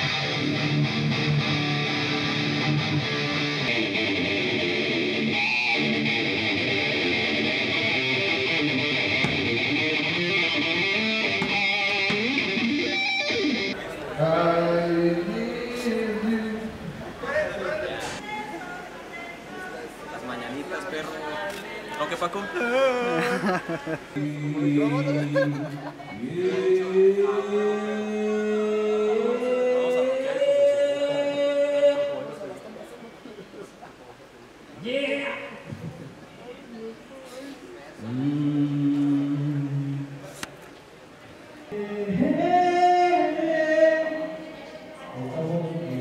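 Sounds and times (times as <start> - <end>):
rock music with distorted guitars: 0.0 - 13.7
voices holding a sung note: 13.7 - 32.8.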